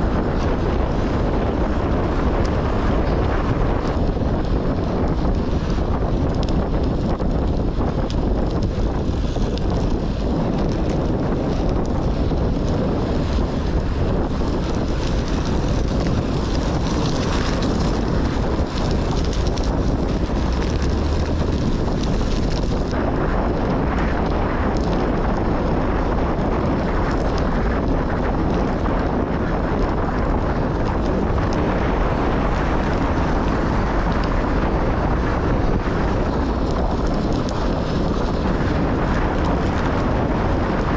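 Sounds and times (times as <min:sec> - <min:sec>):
wind buffeting microphone: 0:00.0 - 0:40.9.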